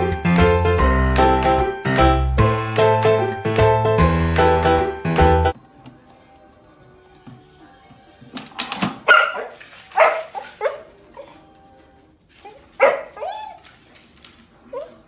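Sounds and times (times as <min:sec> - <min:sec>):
small dog barking: 0:09.1 - 0:10.9, 0:12.8 - 0:13.4.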